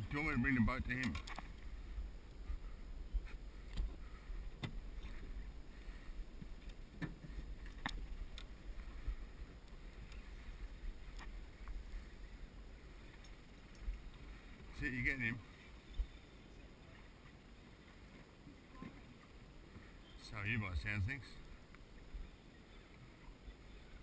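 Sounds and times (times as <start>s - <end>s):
wind and water rumble: 0.0s - 24.0s.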